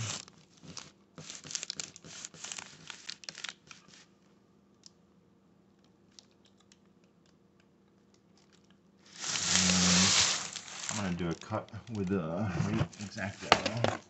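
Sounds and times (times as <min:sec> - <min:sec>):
hands scraping plastic strip on floor: 0:09.1 - 0:11.2.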